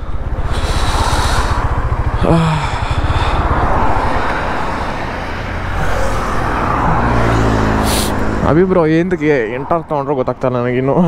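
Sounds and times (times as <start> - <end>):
motorcycle engine idling: 0.0 - 5.8
road traffic noise: 0.0 - 11.0.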